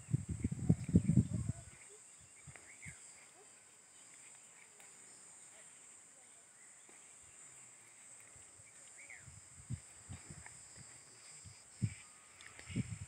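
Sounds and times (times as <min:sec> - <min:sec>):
wind buffeting microphone: 0:00.0 - 0:03.0, 0:08.5 - 0:13.0
insects droning: 0:00.0 - 0:13.0.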